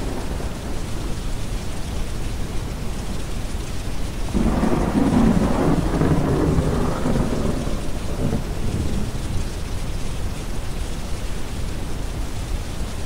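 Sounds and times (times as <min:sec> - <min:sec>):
rolling thunder: 0:00.0 - 0:01.9, 0:04.2 - 0:10.0
steady rain: 0:00.0 - 0:13.0.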